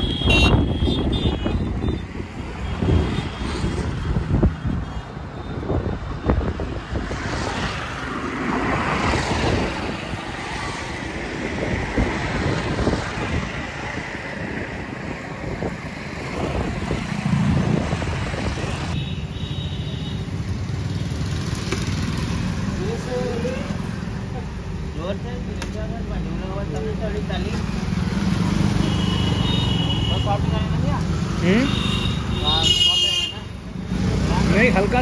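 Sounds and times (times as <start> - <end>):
road traffic on a bridge: 0.0 - 35.0
wind buffeting microphone: 0.2 - 19.0.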